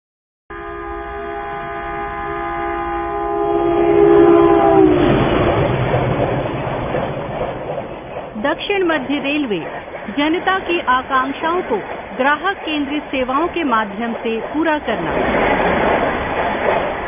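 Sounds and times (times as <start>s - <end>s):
train horn: 0.5s - 5.3s
train running by: 0.6s - 17.0s.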